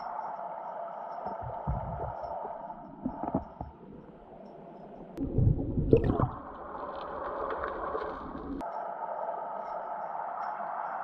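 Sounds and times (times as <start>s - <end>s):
gurgling water rumbles: 1.3s - 4.4s, 5.1s - 8.6s.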